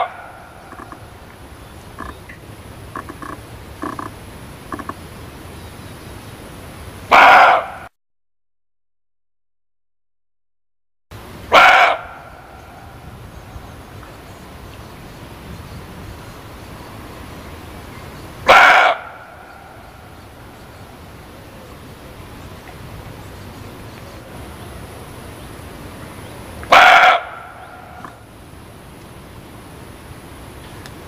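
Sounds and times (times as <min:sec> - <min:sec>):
deer barking: 0:00.0 - 0:01.0, 0:07.1 - 0:07.9, 0:11.5 - 0:12.6, 0:18.4 - 0:19.8, 0:26.7 - 0:28.2
steady background hiss: 0:00.0 - 0:07.2, 0:11.2 - 0:31.0.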